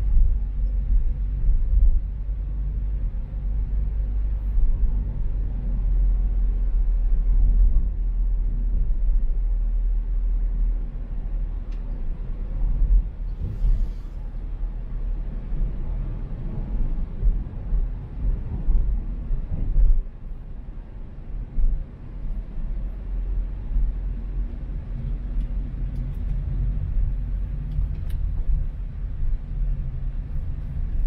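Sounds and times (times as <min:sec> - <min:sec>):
car engine and road noise: 0:00.0 - 0:31.0
faint short hiss: 0:13.3 - 0:14.3.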